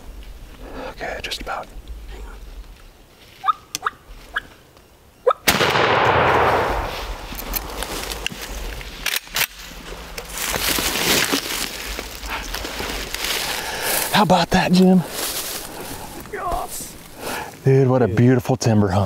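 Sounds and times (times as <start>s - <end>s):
wild turkey calls: 3.4s - 4.6s
shotgun blast echoing: 5.5s - 7.3s.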